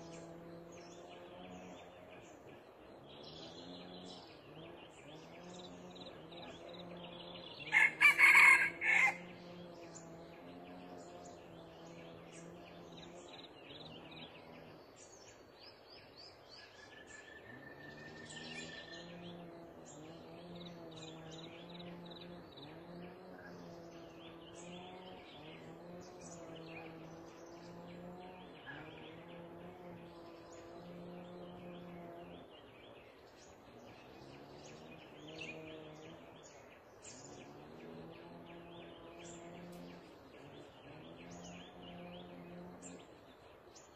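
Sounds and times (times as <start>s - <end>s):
small birds chirping: 0.0s - 43.9s
steady low hum: 0.0s - 43.9s
rooster crowing: 7.6s - 9.4s.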